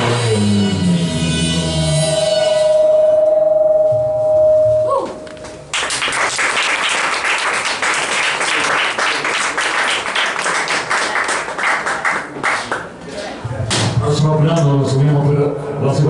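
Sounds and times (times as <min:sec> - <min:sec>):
audience applause: 0:05.7 - 0:12.8.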